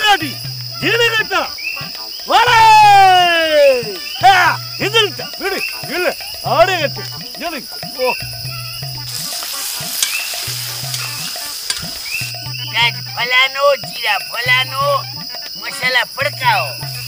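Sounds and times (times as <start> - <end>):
high cricket-like trill: 0.0 - 17.0
comic background music: 0.7 - 13.4
hiss: 9.0 - 12.4.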